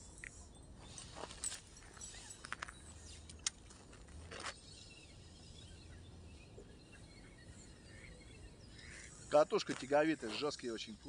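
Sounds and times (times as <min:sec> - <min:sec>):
bird chirps: 0:04.2 - 0:11.0.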